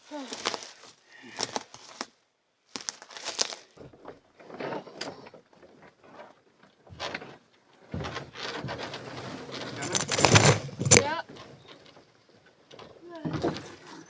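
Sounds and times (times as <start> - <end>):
brush rustling and scraping: 0.0 - 12.4
twigs snapping: 0.2 - 3.8, 9.8 - 11.1.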